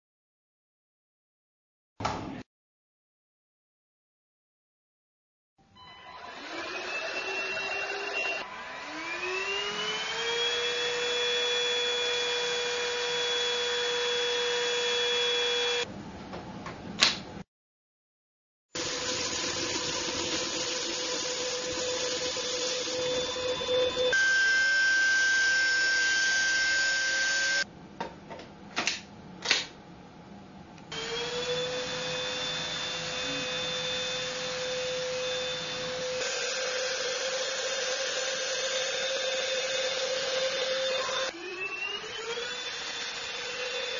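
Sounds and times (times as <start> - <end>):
vacuum motor whining: 5.8 - 15.8, 21.0 - 27.6, 30.9 - 43.9.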